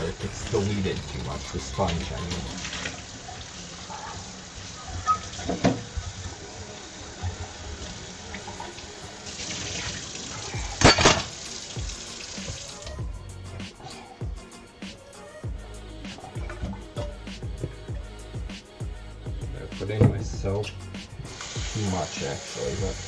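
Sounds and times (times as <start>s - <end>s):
dishware clunking against sink: 10.8s - 11.3s
faucet running into steel sink: 21.3s - 23.0s.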